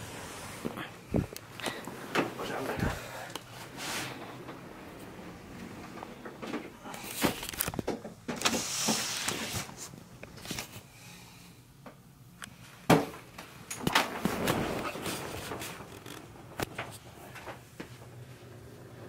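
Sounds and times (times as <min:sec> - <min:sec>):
wicker basket rustling scrape: 0:03.5 - 0:04.6, 0:08.5 - 0:09.9.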